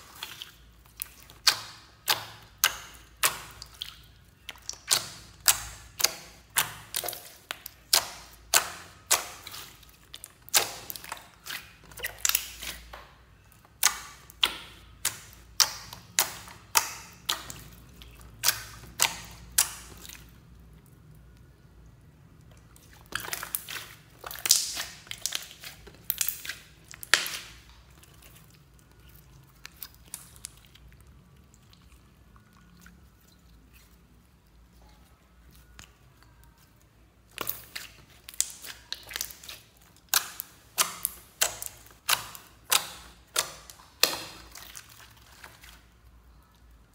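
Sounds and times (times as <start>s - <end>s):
slime squishing: 0.0s - 46.9s
slime clicking and popping: 1.0s - 20.3s, 22.4s - 27.9s, 37.2s - 45.5s.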